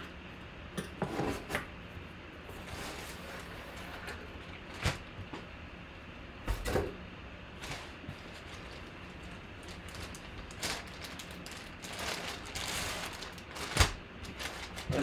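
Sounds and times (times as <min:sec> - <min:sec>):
cloth bag rustling: 0:07.6 - 0:15.0.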